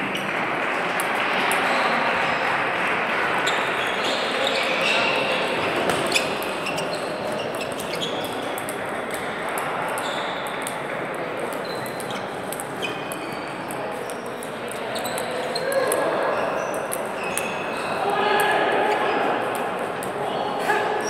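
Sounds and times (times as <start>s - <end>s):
murmur of sports hall: 0.0s - 21.0s
table tennis balls clicking: 5.9s - 17.7s.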